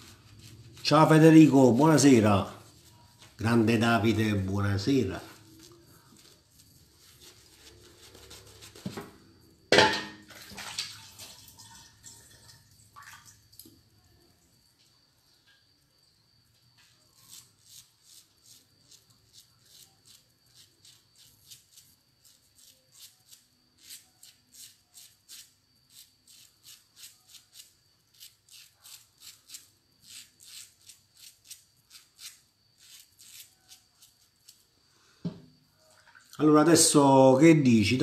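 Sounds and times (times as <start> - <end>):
razor scraping stubble: 0.0 - 9.2, 16.9 - 34.7.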